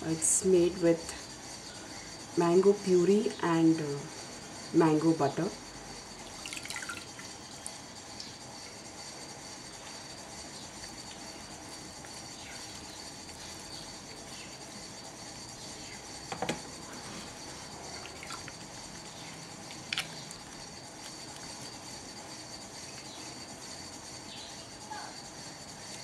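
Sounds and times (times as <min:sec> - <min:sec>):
water dripping: 0:06.3 - 0:07.2, 0:18.0 - 0:18.6.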